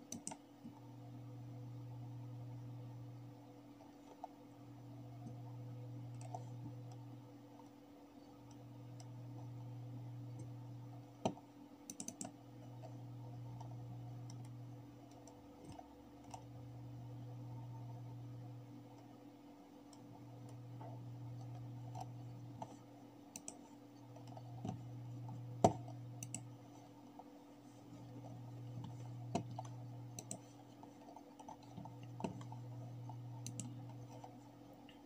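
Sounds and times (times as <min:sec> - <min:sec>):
computer mouse clicking: 0:00.0 - 0:00.8, 0:03.8 - 0:04.4, 0:05.2 - 0:09.7, 0:10.3 - 0:16.6, 0:19.8 - 0:35.0
low steady hum: 0:00.0 - 0:35.0.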